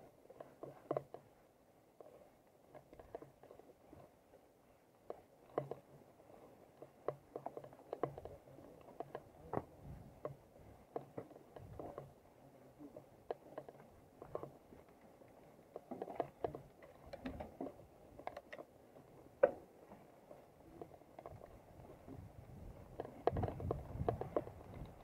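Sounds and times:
tyres crackling on dirt: 2.0s - 25.0s
bike rattling over bumps: 21.3s - 25.0s.

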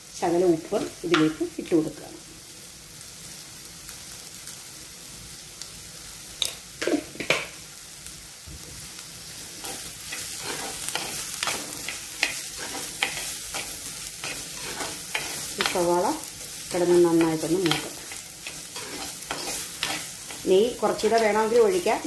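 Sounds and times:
onions sizzling in a pot: 0.0s - 22.0s
steel spoon scraping a pot: 9.6s - 15.8s, 17.2s - 20.5s.

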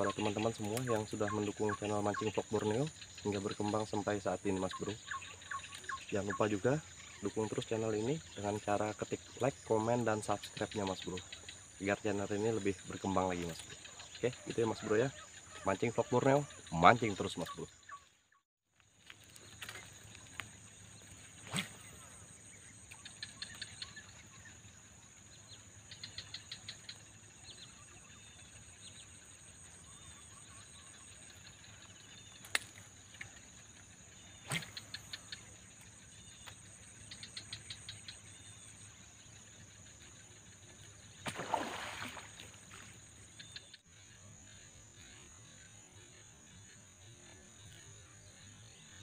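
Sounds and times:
sharp insect clicks: 0.1s - 1.5s, 32.2s - 38.2s.

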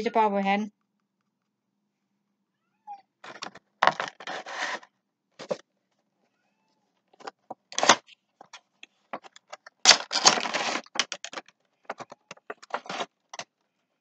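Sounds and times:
cardboard box and plastic rustling: 3.2s - 5.6s, 9.1s - 13.6s.

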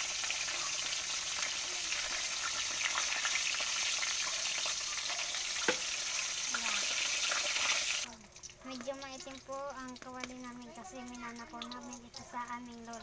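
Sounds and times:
pork fat sizzling in hot oil: 0.0s - 13.0s
sharp oil pop: 5.6s - 5.9s.

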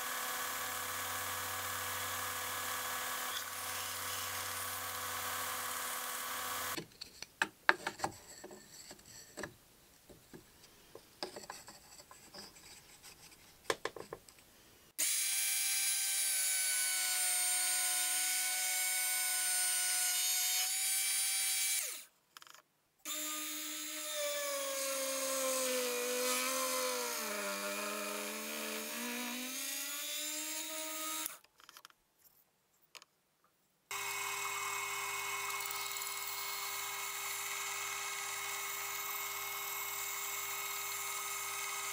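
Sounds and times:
drill bit boring into wood: 0.0s - 6.8s, 33.9s - 41.9s.

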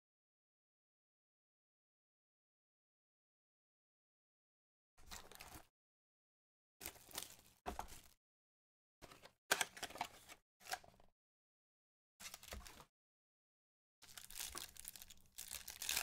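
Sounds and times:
foil wrapper crinkling and tearing: 14.0s - 16.0s.

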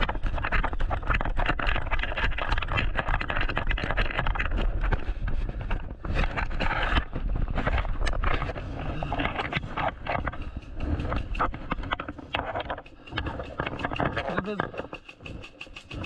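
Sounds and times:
wind rumble on microphone: 0.0s - 12.4s
running footsteps on pavement: 9.6s - 16.0s.

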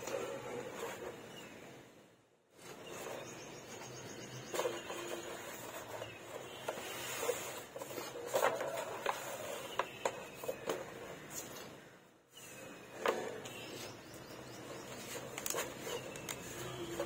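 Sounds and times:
paper shifting: 4.5s - 11.7s, 12.4s - 17.0s.

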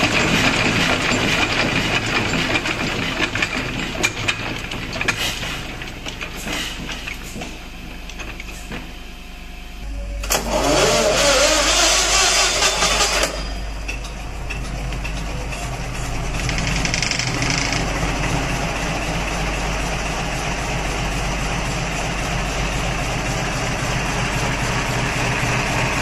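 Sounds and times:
stationary engine clattering: 0.0s - 9.7s, 10.3s - 26.0s
engine running hum: 4.6s - 26.0s
engine starter click: 10.2s - 13.6s
engine spinning up: 10.2s - 13.8s.

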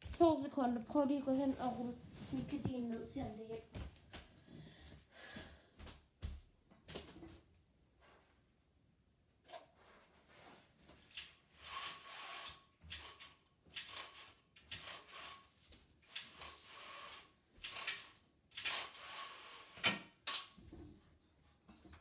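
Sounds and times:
roller blind swishing: 11.5s - 13.2s, 13.8s - 18.0s, 18.6s - 20.0s.

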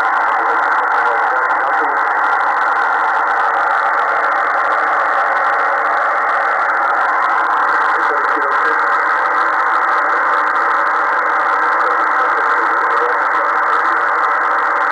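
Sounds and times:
radio static hiss: 0.0s - 14.9s.

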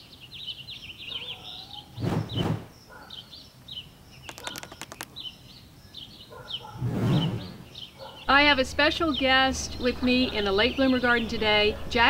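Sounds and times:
songbirds chirping and trilling: 0.0s - 12.0s
sharp clicks: 4.2s - 5.3s.

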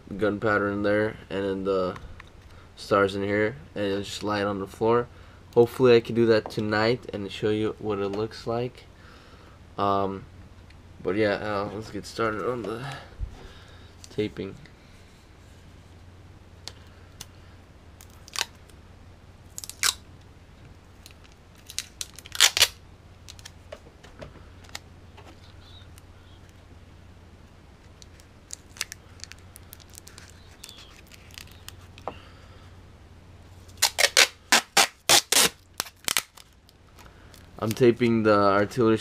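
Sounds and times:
adhesive tape ripping: 18.0s - 18.7s, 19.5s - 20.0s, 21.0s - 23.6s, 27.9s - 32.0s, 33.7s - 36.6s.

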